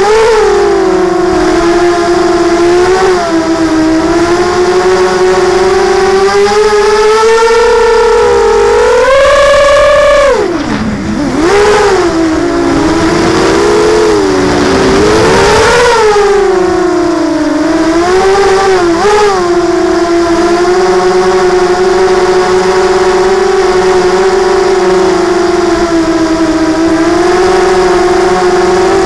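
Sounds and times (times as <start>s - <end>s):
quadcopter motors whining: 0.0s - 29.0s.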